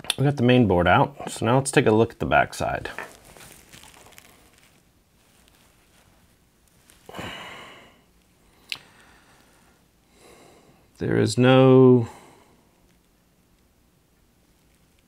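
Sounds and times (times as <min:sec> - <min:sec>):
faint handling sounds: 0:01.2 - 0:07.2, 0:12.6 - 0:15.0.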